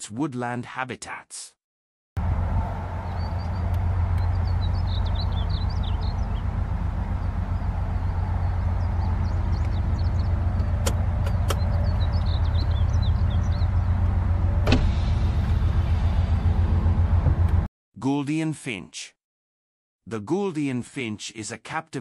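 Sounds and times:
low mechanical hum: 0:02.2 - 0:17.7
bird warbling song: 0:03.0 - 0:14.2
sharp clicks: 0:10.6 - 0:11.7.

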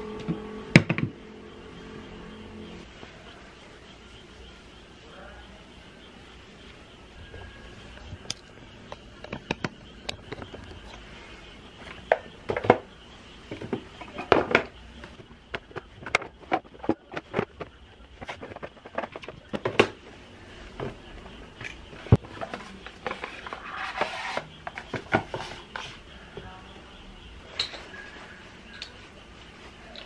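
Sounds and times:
objects knocking on shelf: 0:00.2 - 0:01.2, 0:12.1 - 0:12.9, 0:13.5 - 0:20.0.

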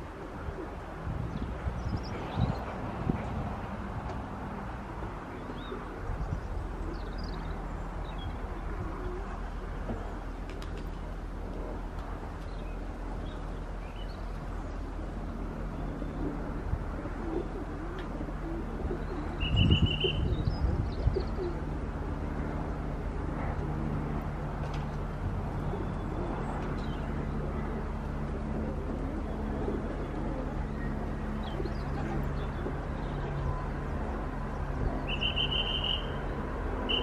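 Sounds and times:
steady low hum: 0:00.0 - 0:37.0
pigeons cooing: 0:08.3 - 0:10.9, 0:15.8 - 0:22.2, 0:25.5 - 0:33.7.

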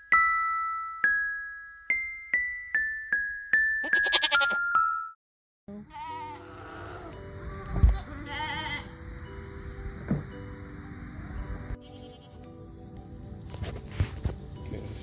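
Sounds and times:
soft background music: 0:00.0 - 0:15.0
goats bleating: 0:03.9 - 0:04.6, 0:05.8 - 0:07.2, 0:08.0 - 0:08.9.

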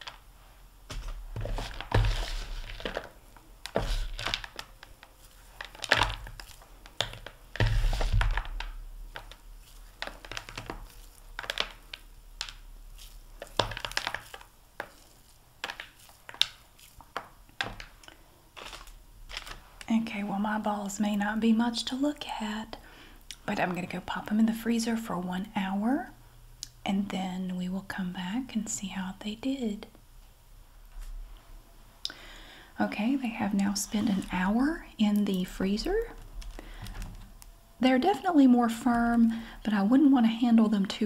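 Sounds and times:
hands rolling crumbly mixture: 0:00.0 - 0:24.6, 0:32.8 - 0:41.0.

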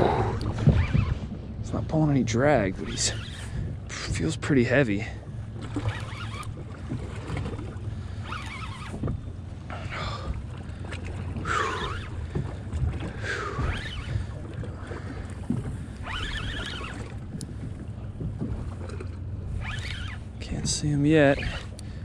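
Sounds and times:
wind on microphone: 0:00.0 - 0:02.0, 0:11.1 - 0:21.8
water lapping at boat hull: 0:00.0 - 0:22.0.

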